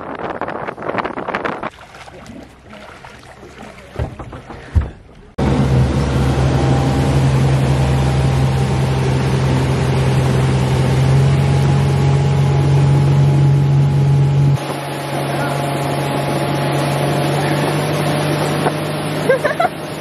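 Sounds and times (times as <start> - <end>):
motorboat engine droning: 0.0 - 20.0
sharp knocks: 3.6 - 5.2.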